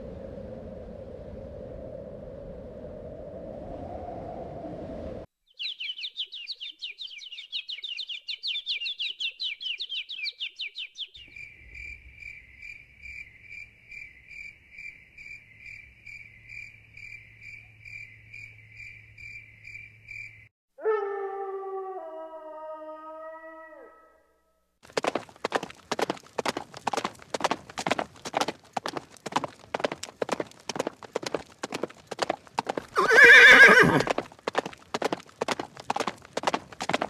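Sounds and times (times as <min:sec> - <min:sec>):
wind rushing: 0:00.0 - 0:05.3
cricket chirping: 0:11.1 - 0:20.5.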